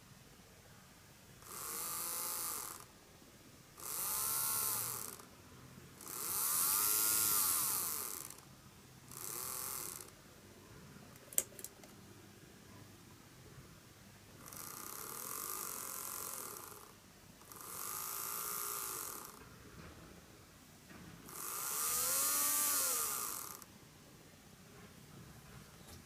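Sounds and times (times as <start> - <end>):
model train bogie whirring whine: 21.3 - 23.6.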